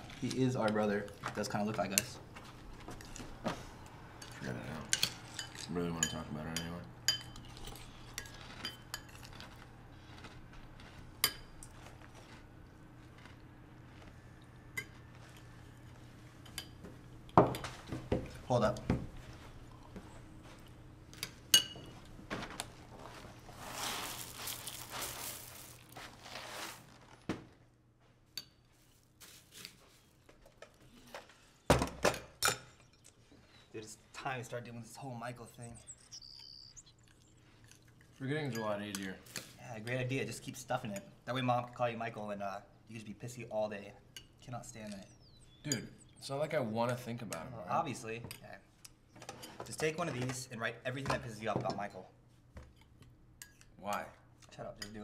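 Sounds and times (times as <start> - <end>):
cutlery clinking against dishes: 4.2 - 9.3, 21.2 - 22.0.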